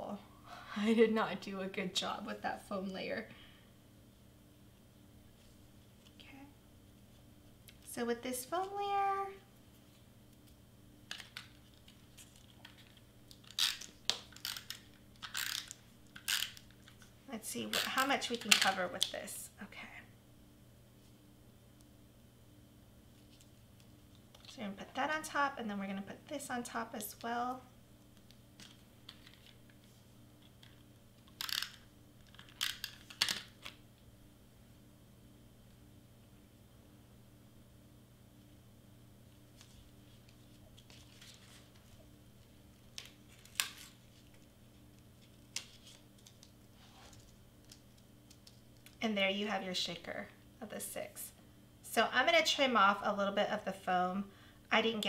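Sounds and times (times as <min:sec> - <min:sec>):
paper rustling: 0:39.5 - 0:42.0.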